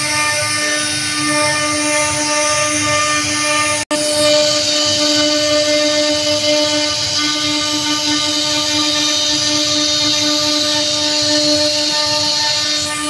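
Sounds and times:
router spindle whine: 0:00.0 - 0:13.0
bit cutting wood hiss: 0:04.4 - 0:13.0.

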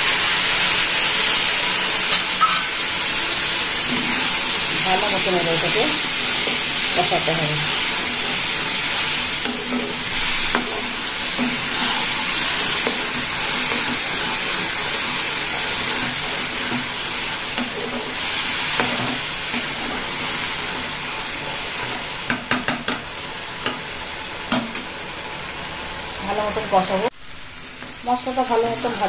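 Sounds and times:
potatoes sizzling in hot oil: 0:00.0 - 0:29.0
spatula stirring in a pan: 0:01.8 - 0:24.9.

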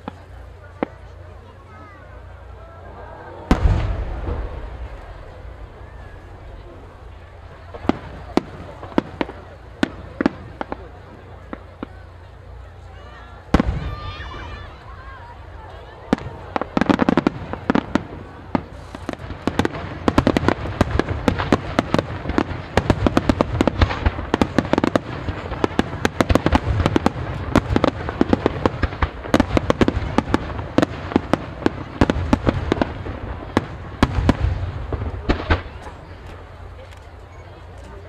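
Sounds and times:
fireworks bursting: 0:00.0 - 0:38.0
low rumble: 0:02.6 - 0:11.1.

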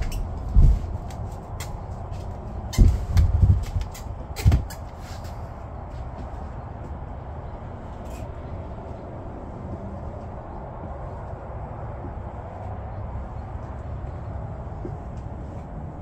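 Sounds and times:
dull thumps and knocks: 0:00.0 - 0:01.7, 0:02.6 - 0:04.8
low background rumble: 0:00.0 - 0:16.0.

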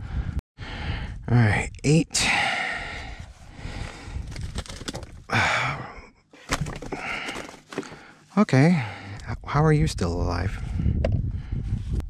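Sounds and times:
man sighing: 0:05.3 - 0:06.1.

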